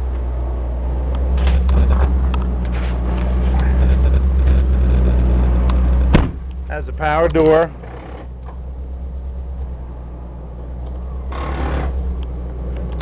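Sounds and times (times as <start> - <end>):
van engine running: 0.0 - 13.0
interior rattles and clicks: 1.1 - 9.1, 10.8 - 13.0.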